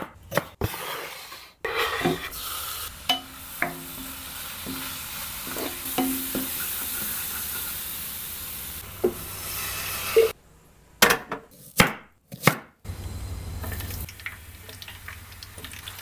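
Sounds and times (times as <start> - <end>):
spatula stirring and scraping: 0.6 - 2.5, 4.6 - 7.8
food sizzling in a pan: 1.7 - 10.4.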